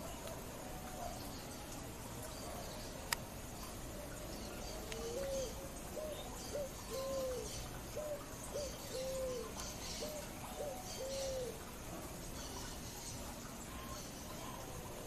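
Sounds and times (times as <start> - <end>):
pigeon cooing: 4.7 - 11.6.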